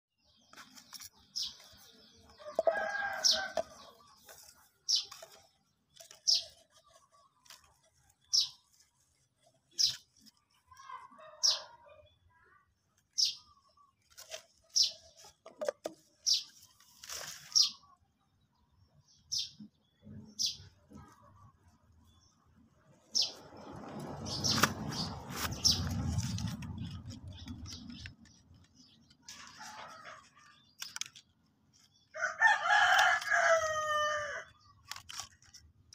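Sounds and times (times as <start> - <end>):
bird chirping: 0.2 - 32.2
handling rustle: 0.5 - 10.7, 14.0 - 17.8, 34.8 - 35.9.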